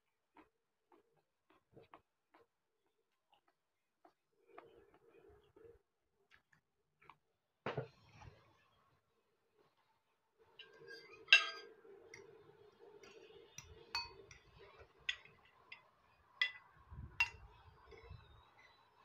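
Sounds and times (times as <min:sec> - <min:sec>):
metal fork clinking on glass: 0:10.9 - 0:11.8, 0:13.0 - 0:17.4.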